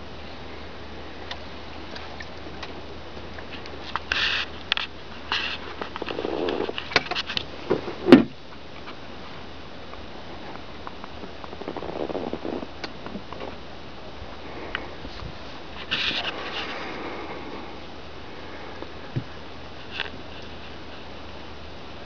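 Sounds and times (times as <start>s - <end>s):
faint steady hum: 0.0s - 22.0s
short rustling hisses: 4.1s - 4.6s
dull thump: 7.7s - 8.4s.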